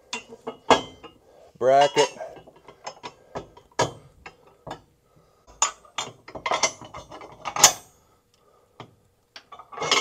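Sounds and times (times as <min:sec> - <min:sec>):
metal hardware clicking and clinking: 0:05.5 - 0:07.9.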